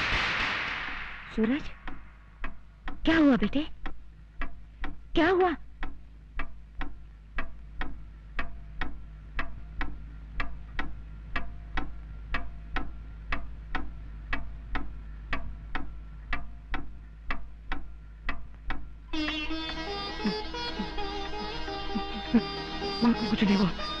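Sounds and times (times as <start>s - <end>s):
wall clock ticking: 0.9s - 24.0s
sitar music: 19.1s - 24.0s.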